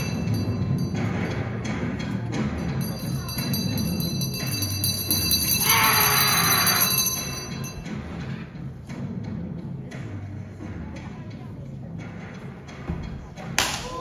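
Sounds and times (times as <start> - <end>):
music with bell-like jingling: 0.0 - 9.1.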